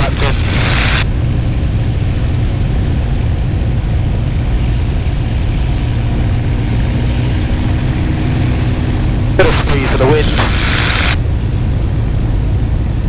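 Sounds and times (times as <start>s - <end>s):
aircraft engine running: 0.0s - 13.0s
slipstream noise: 9.4s - 11.2s.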